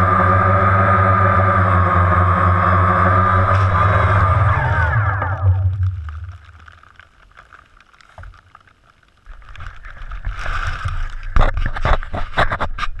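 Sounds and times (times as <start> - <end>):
leaves rustling against camera: 5.2 - 13.0.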